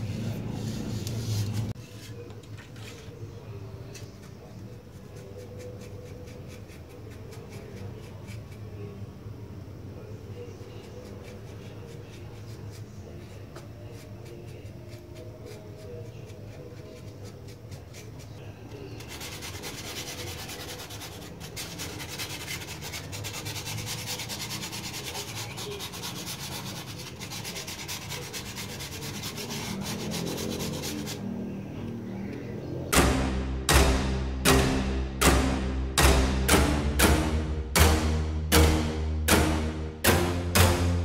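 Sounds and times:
scratchy brushing on foam: 4.4 - 8.9, 10.4 - 31.3
pad rubbing on foam: 19.0 - 31.2.

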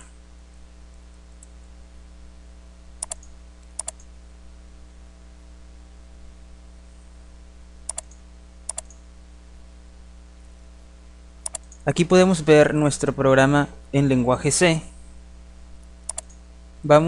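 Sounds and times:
low mains hum: 0.0 - 17.0
computer mouse button clicking: 3.0 - 4.1, 7.9 - 9.0, 11.4 - 11.8, 16.1 - 16.4.

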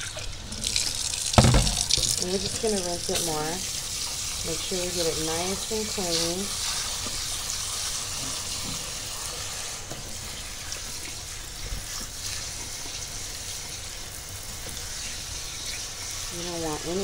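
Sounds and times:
tap water splashing into sink: 0.0 - 3.3.

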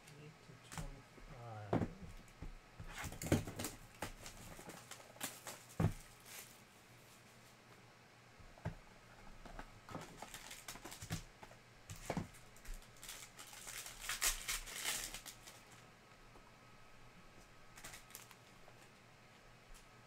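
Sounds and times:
taps and knocks of boxes: 1.7 - 4.2
foil wrapper crinkling: 3.0 - 6.6, 9.9 - 11.3, 11.9 - 15.8, 17.7 - 18.9.

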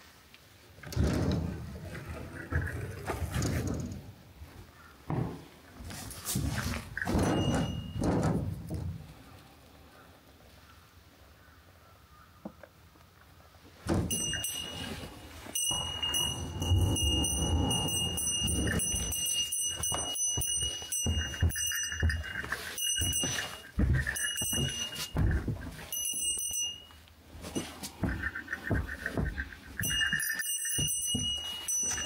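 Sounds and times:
footsteps climbing wooden stairs: 5.1 - 9.1, 13.8 - 32.0
small bell ringing: 7.1 - 8.1, 14.1 - 27.0, 29.8 - 32.0.

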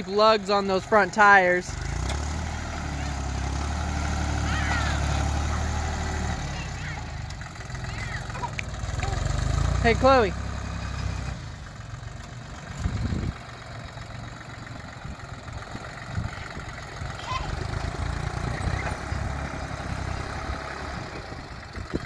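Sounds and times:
tractor diesel engine under load: 0.0 - 22.0.

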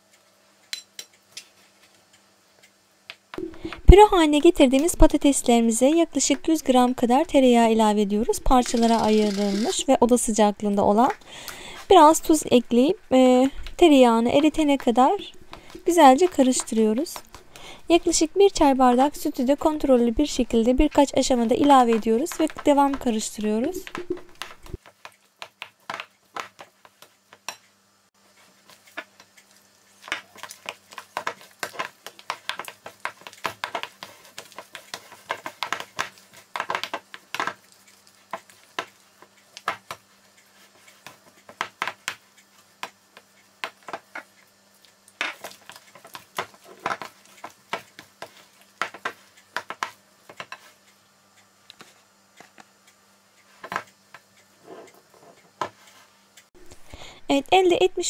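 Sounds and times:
spoon stirring mashed potatoes: 28.4 - 41.7.

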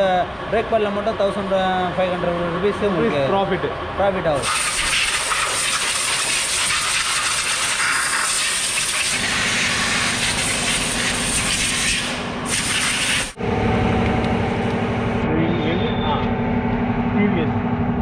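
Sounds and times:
compressed air hissing from hose: 4.4 - 13.4
low mechanical hum: 9.2 - 18.0.

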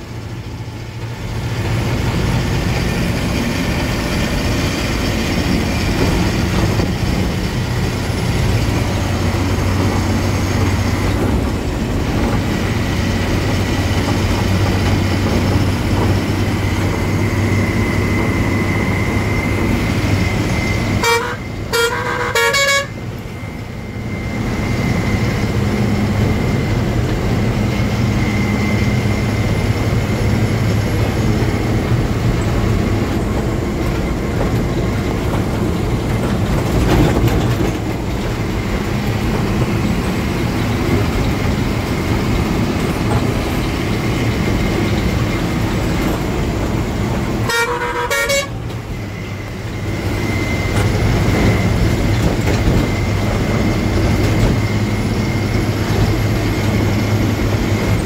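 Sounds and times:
road noise: 0.0 - 58.0
truck diesel engine droning: 0.0 - 58.0
short horn blasts: 20.9 - 23.0, 47.4 - 48.7.

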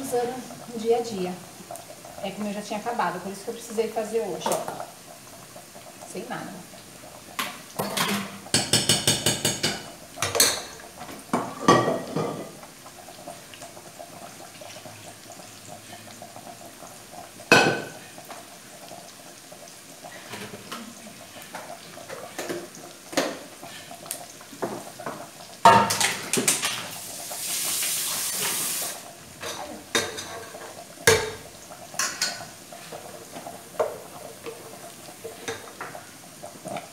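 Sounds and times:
pots and utensils knocking on counter: 7.4 - 12.6, 17.5 - 18.0, 24.6 - 26.8, 29.4 - 31.4.

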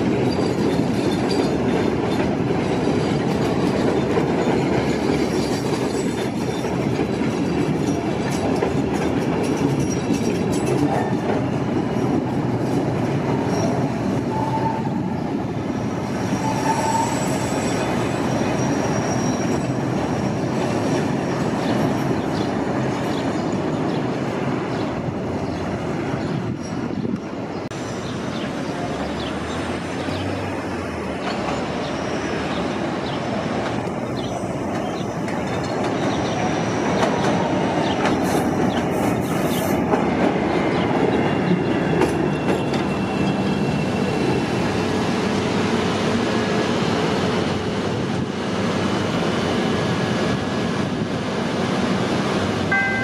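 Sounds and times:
train rumbling past on rails: 0.0 - 53.0
wheels clicking over rail joints: 0.1 - 13.8
high wheel squeals: 13.5 - 22.4.

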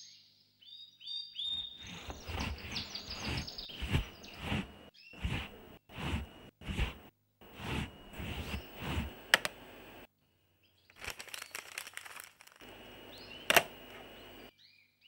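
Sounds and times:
birds chirping faintly: 0.0 - 6.5, 7.9 - 15.0
swishing footsteps: 1.6 - 9.2.

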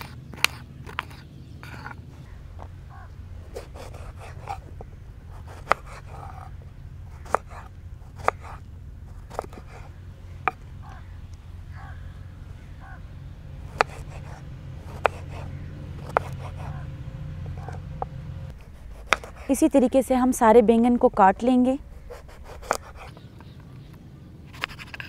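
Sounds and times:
steady low hum: 0.0 - 25.0
knife cutting eggplant: 3.5 - 4.6, 5.3 - 6.5, 7.1 - 9.9, 13.7 - 16.8, 18.6 - 19.7, 22.0 - 23.3.

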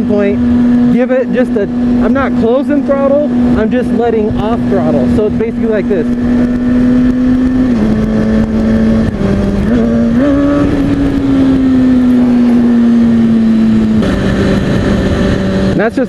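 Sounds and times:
motorcycle engine running: 0.0 - 16.0
wind rush on helmet: 0.0 - 16.0.

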